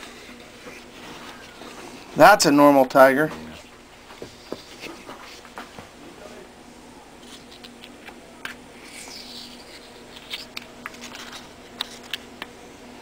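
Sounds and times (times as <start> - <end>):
steady low hum: 0.0 - 13.0
eggshells being peeled open: 7.2 - 12.5.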